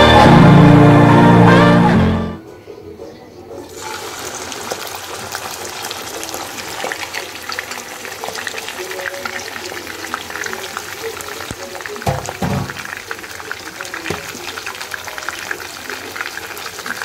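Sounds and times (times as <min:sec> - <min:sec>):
oil sizzling in a pan: 0:03.7 - 0:17.0.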